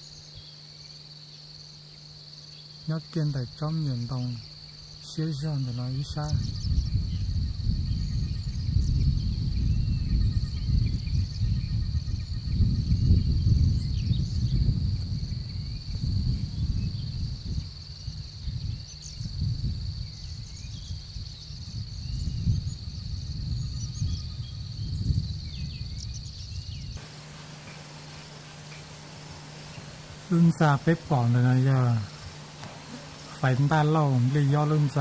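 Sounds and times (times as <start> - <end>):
insect buzzing: 0.0 - 13.8, 27.0 - 35.0
bird chirps: 25.8 - 35.0
low hum: 27.0 - 35.0.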